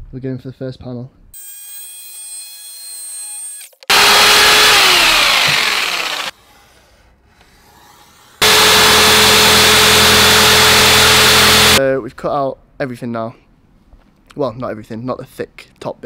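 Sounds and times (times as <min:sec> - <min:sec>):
electric jigsaw cutting plywood: 0:03.9 - 0:06.3, 0:08.4 - 0:11.8.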